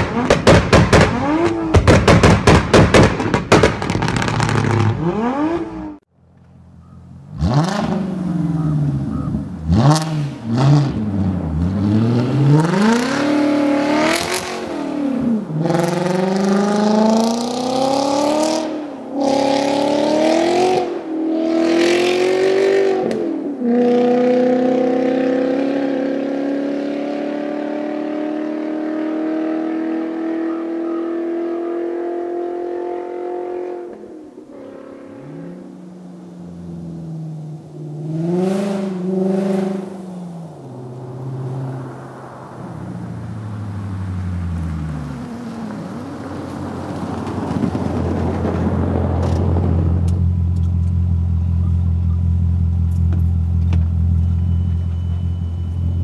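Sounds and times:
rapid sharp cracks: 0.0s - 4.9s
car engine accelerating: 3.8s - 56.0s.

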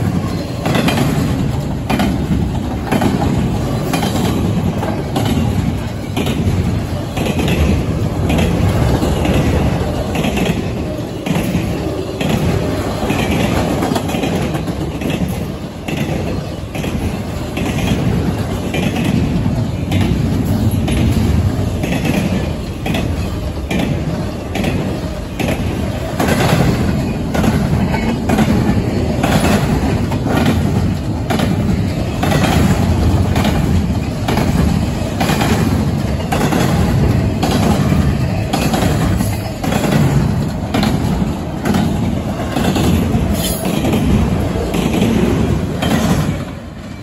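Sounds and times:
freight train passing: 0.0s - 47.0s
wheels clacking over rail joints: 0.0s - 47.0s.

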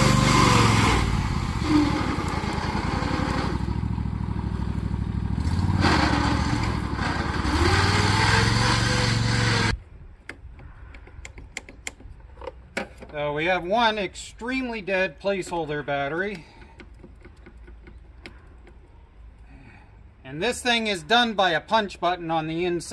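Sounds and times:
lawn tractor engine running: 0.0s - 9.8s.

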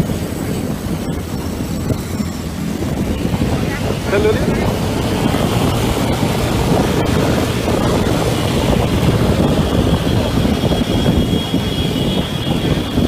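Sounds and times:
engine and road rumble: 0.0s - 13.0s
wind buffeting microphone: 0.0s - 13.0s.

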